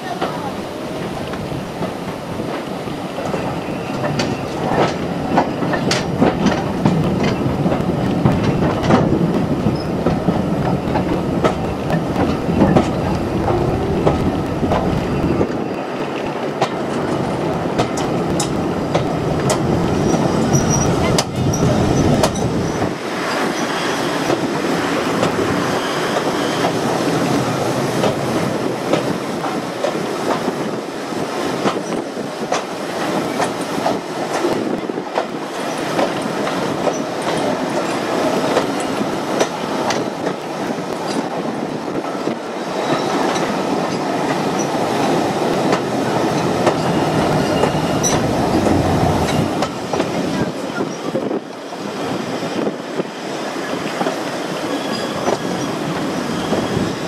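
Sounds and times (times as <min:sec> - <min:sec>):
train carriage rumble: 0:00.0 - 0:57.0
wheels clickety-clack over rail joints: 0:00.0 - 0:57.0
high wheel squeaks: 0:19.9 - 0:24.2, 0:46.4 - 0:49.6, 0:54.6 - 0:57.0.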